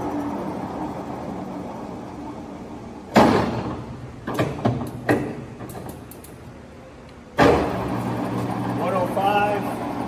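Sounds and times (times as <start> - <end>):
lathe running with steady hum: 0.0 - 3.1, 7.6 - 10.0
heavy clunk of drive engaging: 3.1 - 5.8.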